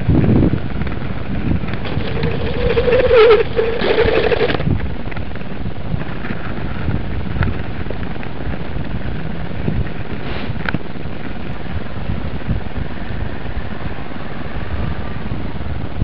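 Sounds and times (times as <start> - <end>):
skate wheels rolling on pavement: 0.0 - 16.0
wind on microphone: 0.0 - 16.0
humming tone: 1.8 - 4.6.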